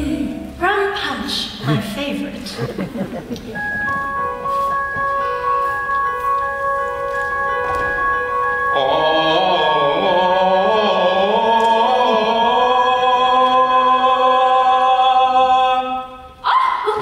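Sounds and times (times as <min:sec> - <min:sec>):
sustained accompaniment chord: 0:02.6 - 0:12.7
man singing with vibrato: 0:08.5 - 0:16.4.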